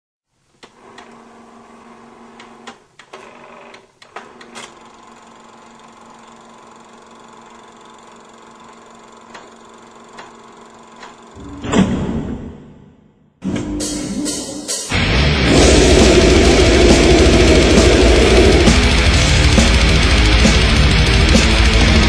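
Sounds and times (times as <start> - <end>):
film projector whirring: 0.6 - 11.4, 15.5 - 22.0.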